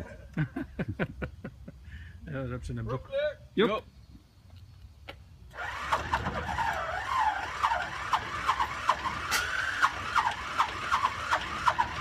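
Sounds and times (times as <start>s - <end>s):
engine starter whine: 5.4s - 12.0s.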